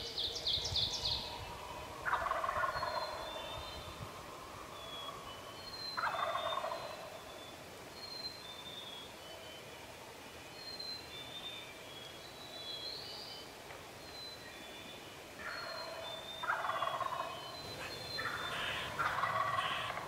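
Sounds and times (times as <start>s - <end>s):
faint songbird notes: 0.0s - 20.0s
turkey gobbling: 2.0s - 3.3s, 6.0s - 7.2s, 15.4s - 20.0s.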